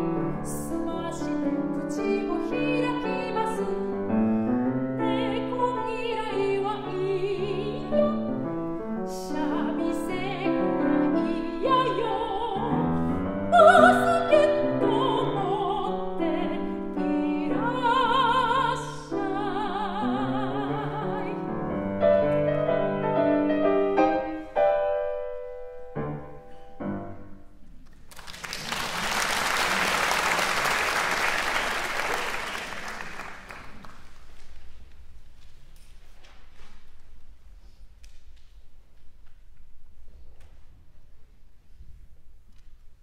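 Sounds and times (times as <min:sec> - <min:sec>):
grand piano: 0:00.0 - 0:35.8
soprano singing with vibrato: 0:00.2 - 0:04.1, 0:05.0 - 0:21.6
audience applauding: 0:27.8 - 0:34.4.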